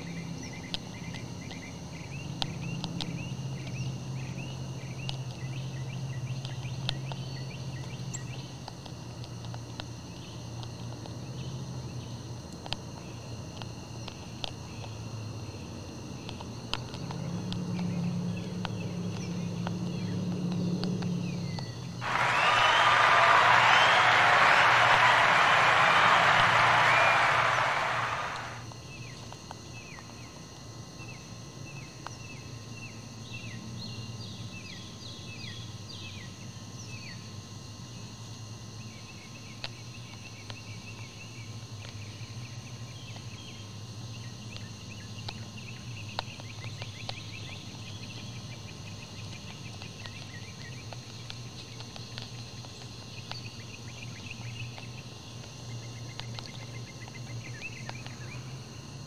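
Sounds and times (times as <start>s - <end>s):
insects chorus: 13.0s - 37.2s.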